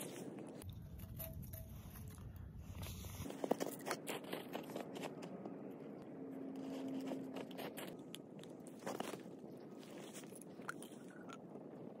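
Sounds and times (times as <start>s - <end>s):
footsteps crunching in snow: 2.6s - 5.6s, 6.6s - 10.4s.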